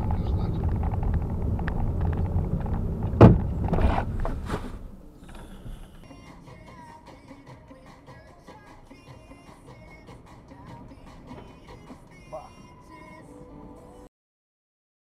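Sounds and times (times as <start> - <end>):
car engine and road rumble: 0.0 - 6.1, 8.8 - 13.2
sharp thump: 2.8 - 5.9.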